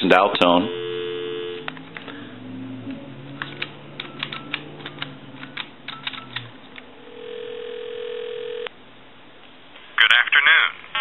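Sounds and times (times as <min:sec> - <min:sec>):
low steady hum: 0:00.0 - 0:09.8
phone line tone: 0:00.5 - 0:01.7, 0:07.1 - 0:08.7
plastic keypad clicks: 0:03.4 - 0:06.4.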